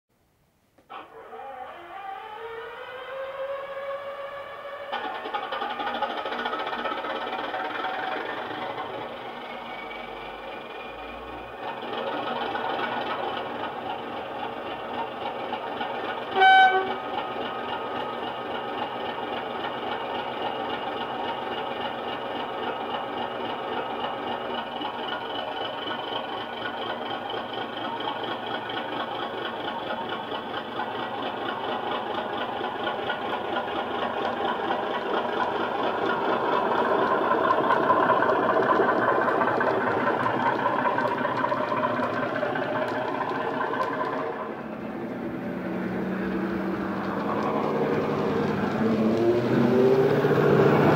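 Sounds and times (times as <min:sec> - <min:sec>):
model locomotive diesel engine sound: 0:00.6 - 0:50.9
locomotive horn blast: 0:16.3 - 0:17.1.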